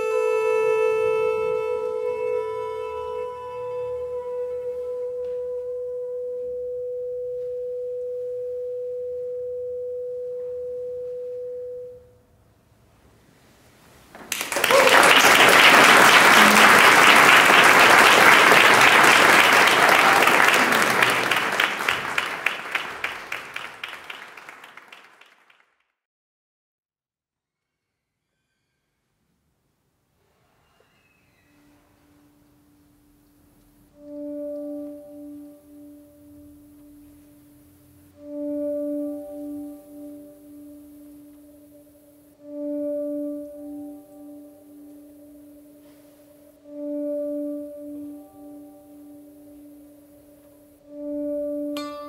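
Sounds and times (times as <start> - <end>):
held musical note: 0.0 - 12.2, 14.6 - 24.0, 33.9 - 52.0
audience applause: 14.2 - 25.7.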